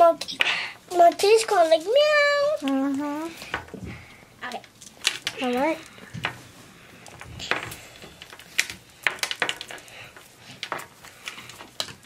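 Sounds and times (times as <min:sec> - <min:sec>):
plastic pieces clicking: 0:04.4 - 0:06.4, 0:07.0 - 0:12.0.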